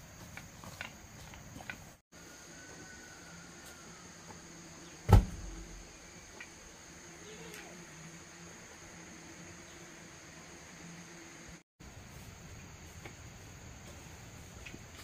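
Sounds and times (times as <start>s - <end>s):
insects droning: 0.0s - 15.0s
log thudding on ground: 5.1s - 5.8s.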